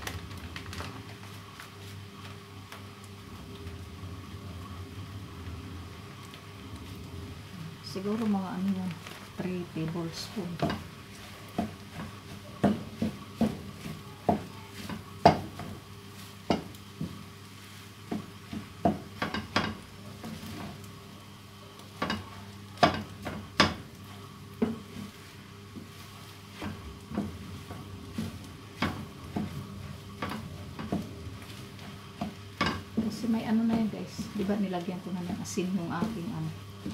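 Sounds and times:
steady low hum: 0.0 - 36.9
wooden spatula scraping frying pan: 9.2 - 20.9, 21.9 - 36.9
spatula knocking against pan: 11.5 - 15.6, 18.1 - 19.8, 22.0 - 23.8.

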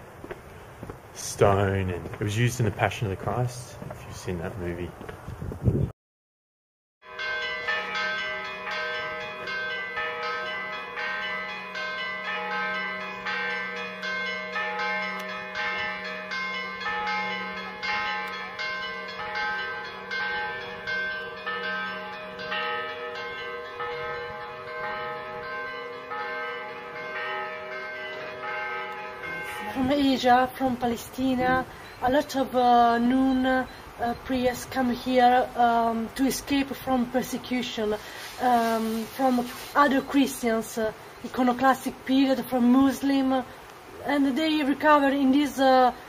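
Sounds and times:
church bells ringing: 7.0 - 43.4.

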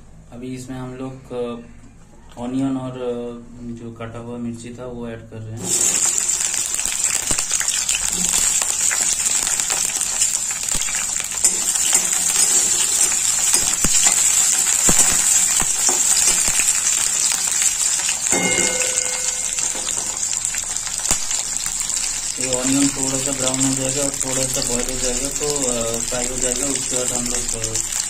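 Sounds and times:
frying sizzle with crackles and pops: 5.6 - 28.0
metal spatula stirring: 9.3 - 17.4
brief ringing tone: 18.3 - 20.0.

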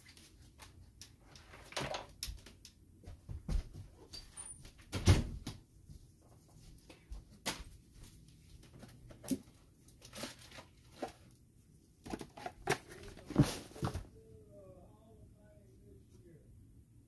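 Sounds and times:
pack wrappers rustling: 8.6 - 11.4.

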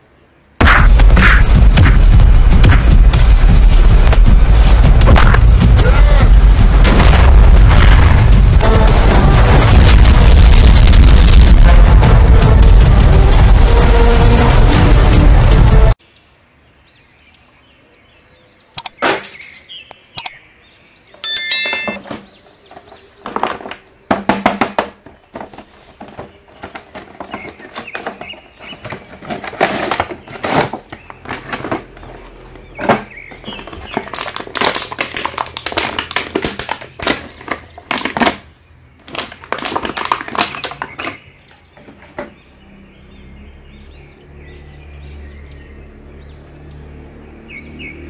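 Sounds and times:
plastic packaging crinkling: 33.5 - 38.3, 39.0 - 41.2.

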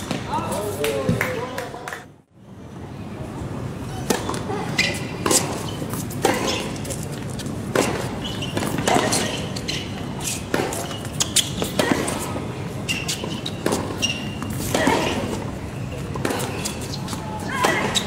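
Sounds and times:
tennis ball hit by rackets: 7.7 - 9.4, 10.3 - 12.3, 13.0 - 15.4.

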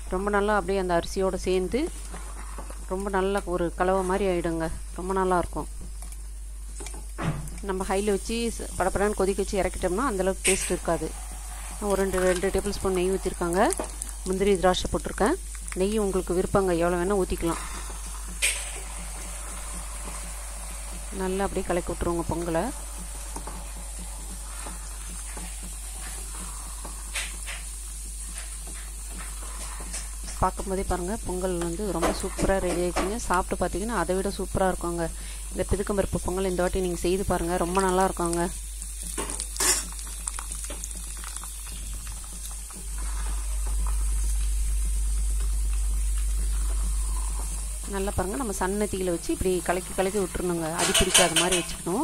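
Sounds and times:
soft sizzling: 0.0 - 52.0
steady low hum: 0.0 - 52.0
wooden spatula stirring in pan: 1.8 - 4.4, 8.0 - 33.6, 38.9 - 52.0
wooden spatula scraping: 1.9 - 2.9, 17.0 - 30.4
small bubbling pops: 11.8 - 33.5, 37.7 - 48.9.

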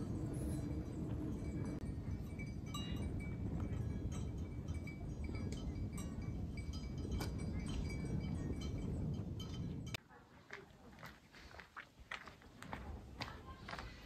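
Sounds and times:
cowbells clinking: 0.0 - 10.0
steady low rumble: 0.0 - 10.0.

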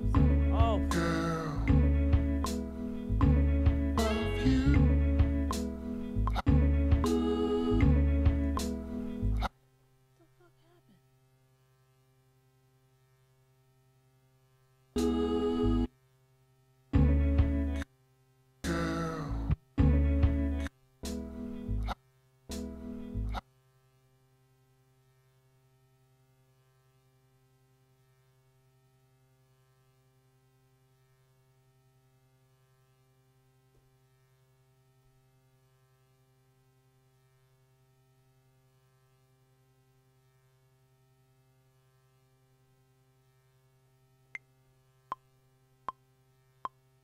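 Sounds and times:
music beat: 0.0 - 9.4
low electrical hum: 0.0 - 47.0.

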